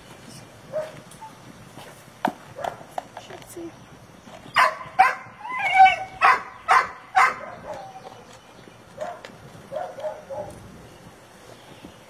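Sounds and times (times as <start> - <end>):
dog barking and whining: 4.5 - 8.1, 9.0 - 10.6.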